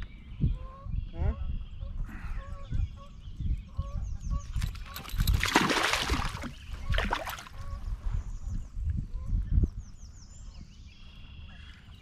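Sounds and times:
wind rumble on microphone: 0.0 - 12.0
fish splashing in water: 5.3 - 7.6.

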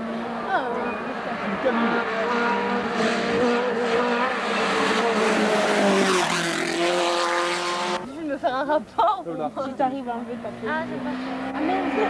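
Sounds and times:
rally car engine passing: 0.0 - 8.1, 9.8 - 12.0.

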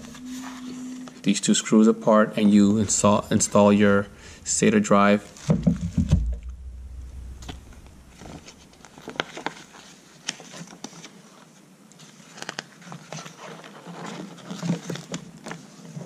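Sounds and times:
paper pages rustling: 8.1 - 16.0.

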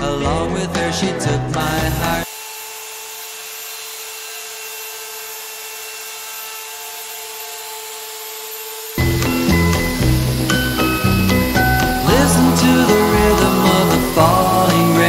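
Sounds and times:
loud music: 0.0 - 2.3, 9.0 - 15.0
router spindle whining: 1.6 - 15.0.

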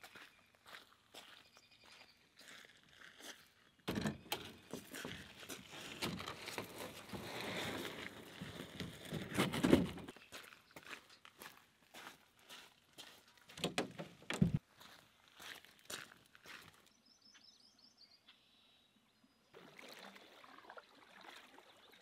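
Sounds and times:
footsteps on gravel: 0.0 - 3.8, 4.4 - 17.0
canoe scraping on shore: 4.3 - 10.1.

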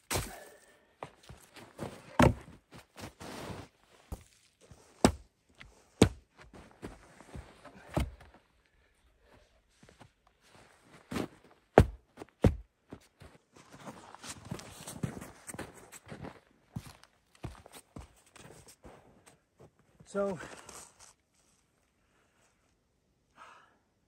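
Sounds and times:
footsteps in snow: 0.1 - 4.9, 9.7 - 11.9, 12.9 - 21.6
logs thunking on snow: 0.1 - 5.3, 6.0 - 8.4, 11.1 - 12.7.

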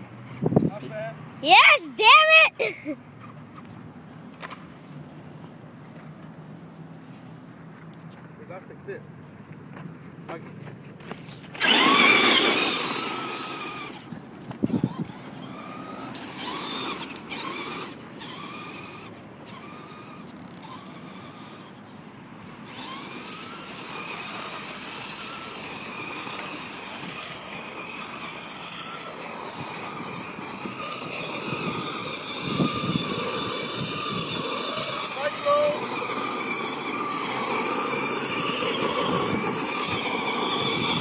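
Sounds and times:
tires spinning on dirt: 0.0 - 41.0
toy truck electric motor whining: 1.4 - 2.8, 11.2 - 41.0.

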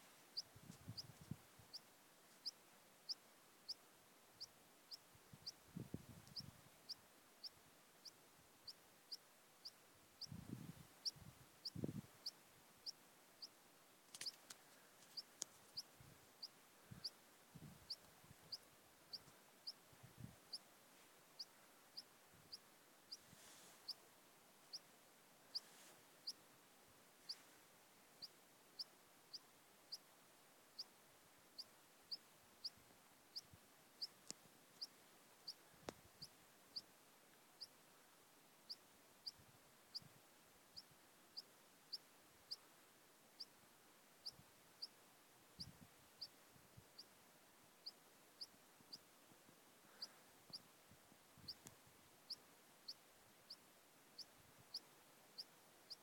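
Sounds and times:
wind thuds on microphone: 10.3 - 12.1.

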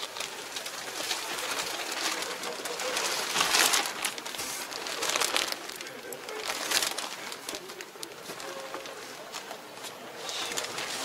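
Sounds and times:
clothing and camera rustling: 0.0 - 11.0.

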